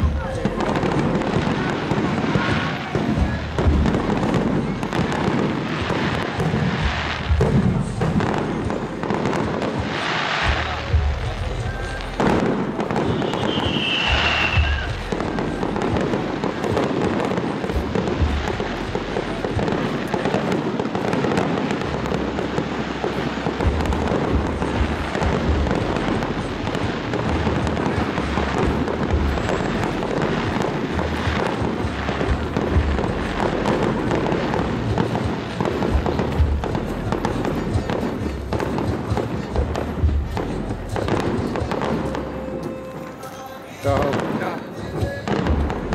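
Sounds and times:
fireworks bursting: 0:00.0 - 0:45.9
fireworks crackling and popping: 0:00.0 - 0:45.9
music: 0:00.0 - 0:45.9
high whistle: 0:13.0 - 0:15.0.

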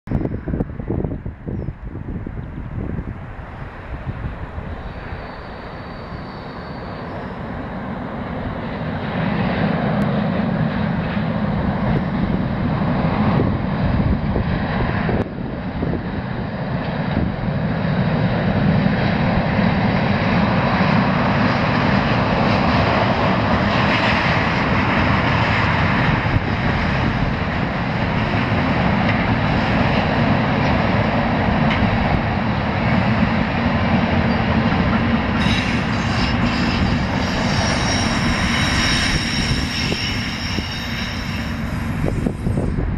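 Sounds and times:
diesel locomotive engines droning: 0:00.1 - 0:42.9
train wheels rolling: 0:33.2 - 0:42.9.

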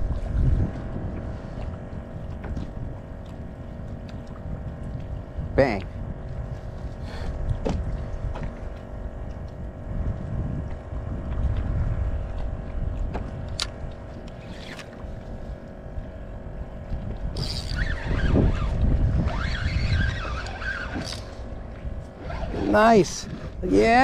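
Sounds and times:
water splashing around kayak: 0:00.0 - 0:24.0
wind buffeting microphone: 0:00.0 - 0:24.0.

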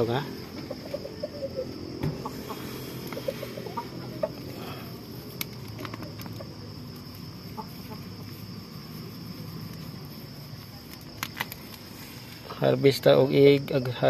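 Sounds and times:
hens clucking: 0:00.4 - 0:08.8.

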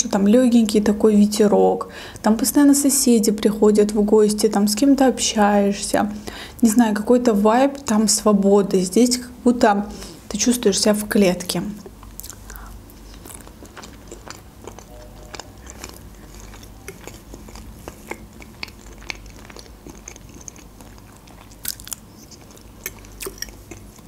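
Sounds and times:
chewing mashed potato: 0:11.8 - 0:24.0
mouth smacks and clicks: 0:12.0 - 0:13.4.

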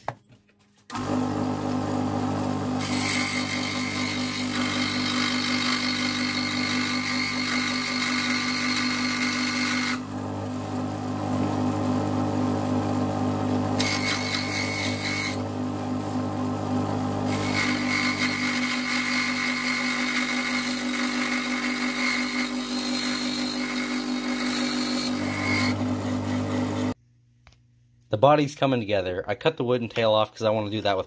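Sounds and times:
scroll saw motor humming: 0:00.9 - 0:27.0
saw blade cutting wood: 0:02.8 - 0:10.1, 0:13.8 - 0:15.5, 0:17.3 - 0:27.0.

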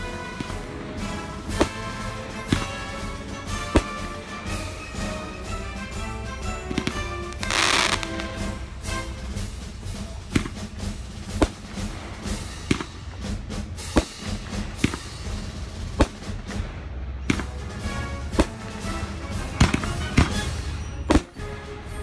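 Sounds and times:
fireworks shells bursting: 0:00.0 - 0:09.5
music playing: 0:00.0 - 0:22.0.

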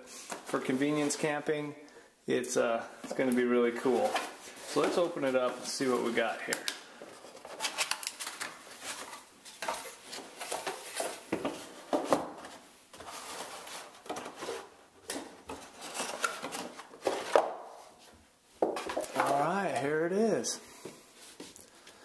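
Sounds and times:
cardboard packaging being opened: 0:07.1 - 0:11.3.

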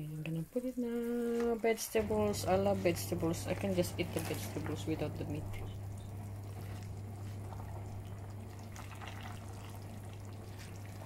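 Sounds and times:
steady low hum: 0:00.0 - 0:11.0
soup bubbling: 0:01.9 - 0:11.0
small crackles: 0:02.7 - 0:11.0.

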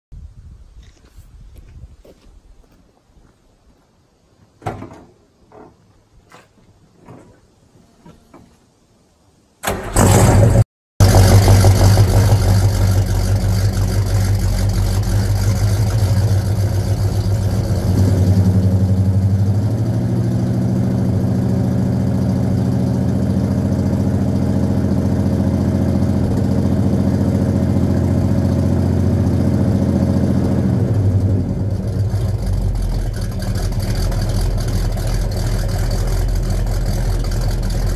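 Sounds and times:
footsteps: 0:00.8 - 0:08.6
car engine cranking and starting: 0:09.6 - 0:37.9
car engine idling: 0:09.6 - 0:37.9.

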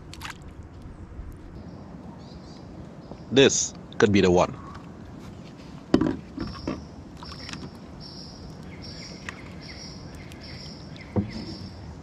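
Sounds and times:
crab pot knocking against kayak: 0:05.9 - 0:06.8, 0:11.1 - 0:11.7
high pulsing chirp: 0:06.5 - 0:11.9.

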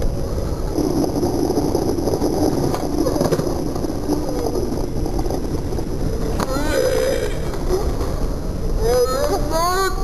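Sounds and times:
skateboard wheels rolling on asphalt: 0:00.0 - 0:09.5
faint voice: 0:06.3 - 0:08.0, 0:08.8 - 0:10.0.

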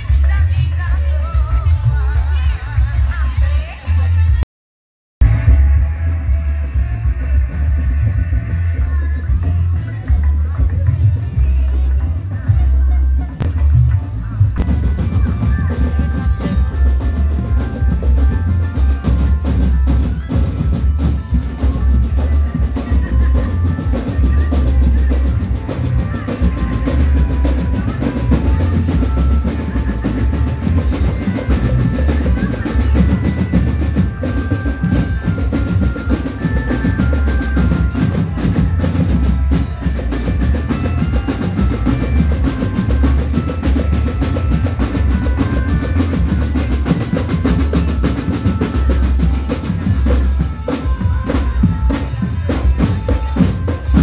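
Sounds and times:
bass drums and snare drums: 0:05.2 - 0:54.0
high melody of held notes: 0:14.6 - 0:54.0.

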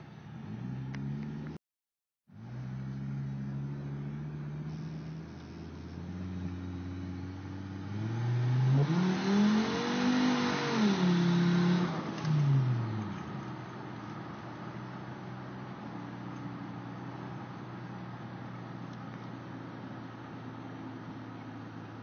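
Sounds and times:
truck engine accelerating: 0:00.0 - 0:01.6, 0:02.3 - 0:22.0
rushing intake noise: 0:03.7 - 0:12.0.

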